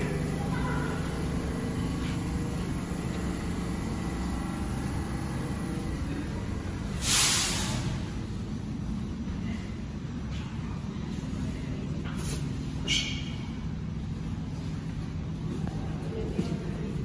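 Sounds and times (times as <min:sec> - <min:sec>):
subway train hum and rumble: 0:00.0 - 0:17.0
compressed air hiss: 0:06.7 - 0:08.4.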